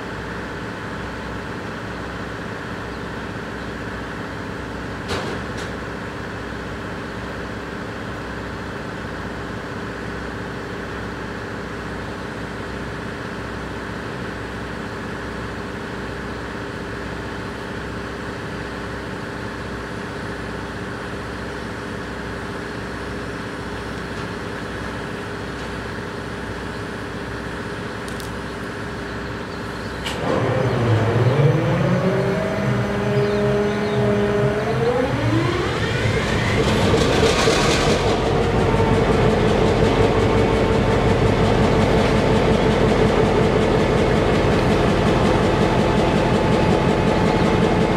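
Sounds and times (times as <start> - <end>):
diesel locomotives idling: 0.0 - 47.9
locomotive engine throttling up: 16.6 - 47.9.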